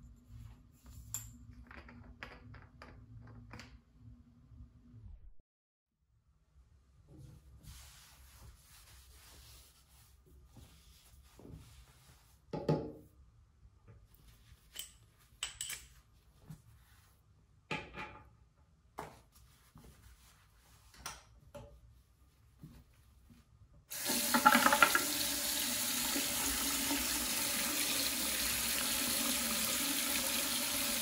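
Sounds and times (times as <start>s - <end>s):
cloth wiping a tap and sink: 7.0s - 17.6s, 18.8s - 31.0s.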